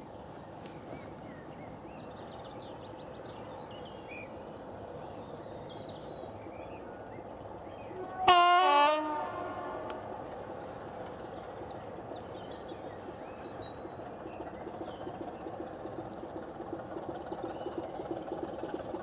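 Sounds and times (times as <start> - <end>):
diesel locomotive horn blast: 8.0 - 10.0.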